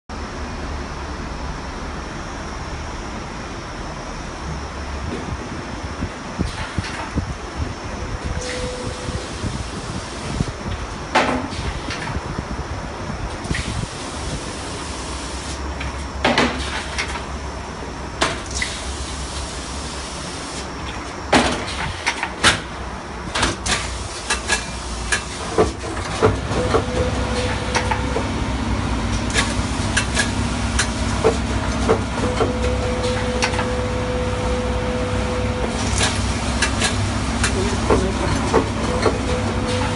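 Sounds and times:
machine clacks and knocks: 0:23.3 - 0:28.3, 0:29.2 - 0:33.7, 0:36.0 - 0:39.9
machine humming: 0:26.2 - 0:39.9
mid-pitched whine: 0:26.6 - 0:39.9.

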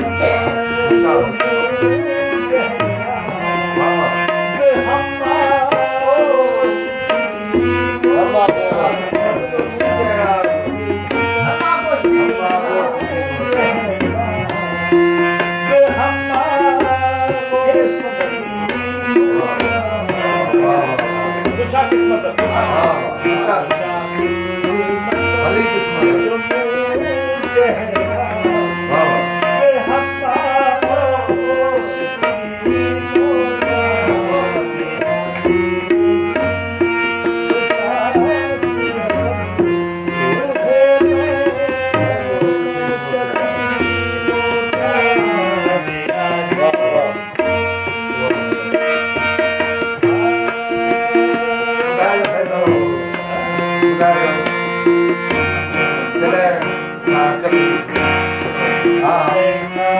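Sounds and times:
sustained melodic accompaniment: 0:00.0 - 0:59.9
tabla playing rhythmic cycle: 0:00.0 - 0:59.9.

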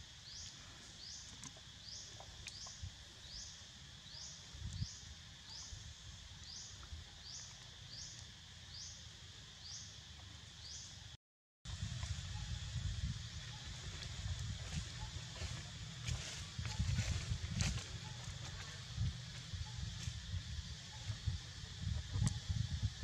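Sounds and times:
high insect drone: 0:00.0 - 0:23.0
low wind rumble: 0:11.7 - 0:23.0.

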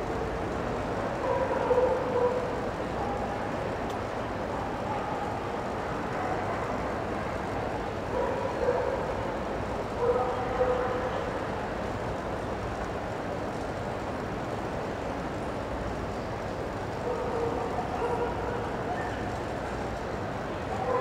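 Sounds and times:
indoor hall hubbub: 0:00.0 - 0:21.0
dog barking: 0:01.2 - 0:03.3, 0:08.2 - 0:09.2, 0:10.0 - 0:11.2, 0:17.0 - 0:19.2, 0:20.8 - 0:21.0.

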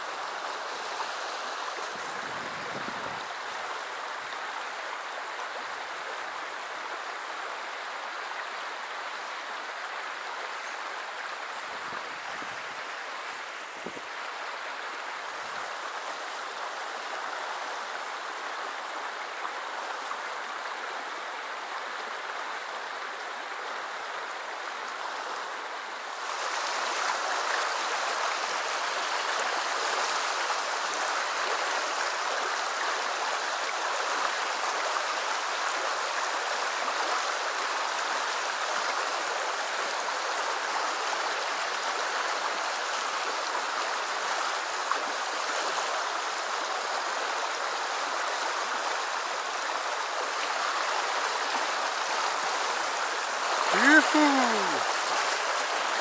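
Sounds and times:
river rushing over stones: 0:00.0 - 0:56.0.

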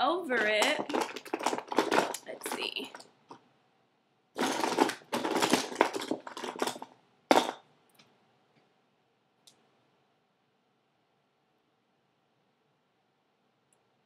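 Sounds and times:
rustling and scraping: 0:00.2 - 0:03.4, 0:04.4 - 0:07.6.

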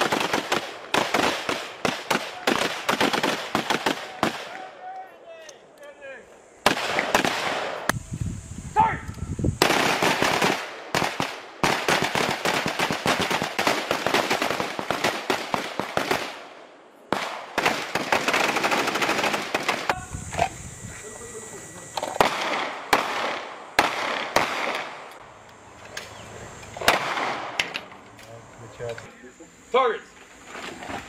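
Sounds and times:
rifles firing rapid shots: 0:00.0 - 0:04.6, 0:06.6 - 0:07.9, 0:09.6 - 0:20.0, 0:22.2 - 0:25.2, 0:26.8 - 0:27.6.

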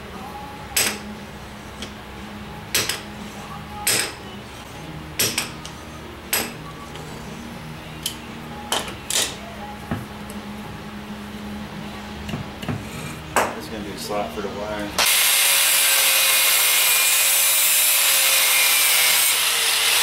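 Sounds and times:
hammer clinking on steel: 0:03.8 - 0:04.2, 0:05.2 - 0:05.7, 0:06.3 - 0:06.6.

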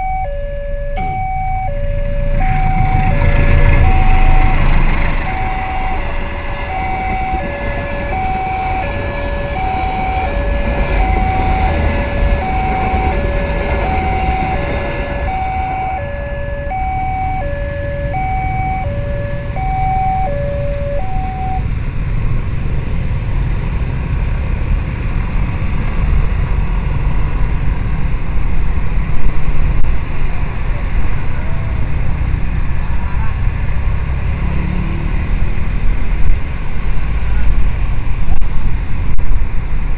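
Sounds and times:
level-crossing warning alarm: 0:00.0 - 0:21.8
motorcycle engines: 0:00.0 - 0:39.9
passing passenger train: 0:00.0 - 0:39.9
wind noise: 0:01.9 - 0:33.6, 0:35.2 - 0:39.9.

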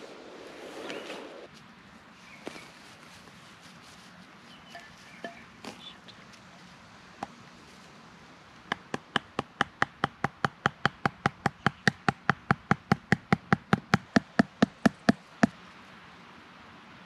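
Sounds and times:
log knocking wooden stake: 0:08.7 - 0:15.6.

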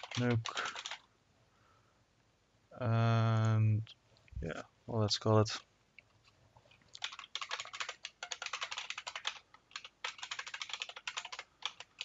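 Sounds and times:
keyboard typing: 0:00.0 - 0:01.0, 0:07.0 - 0:12.0.

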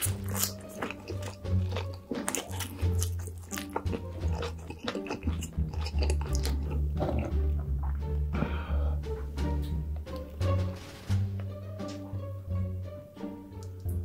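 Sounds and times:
chewing french fries: 0:00.0 - 0:08.1
background music with bass line: 0:00.0 - 0:14.0.

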